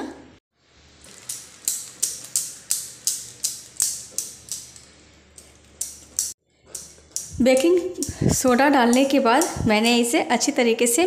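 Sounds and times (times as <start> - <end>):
whisk clinking against metal pot: 5.4 - 10.0.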